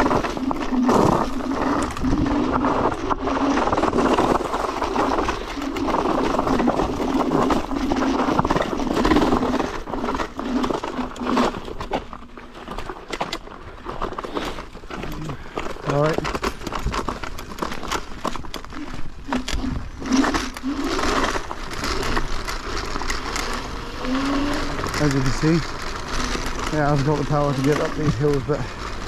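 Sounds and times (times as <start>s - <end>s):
road noise: 20.0s - 29.0s.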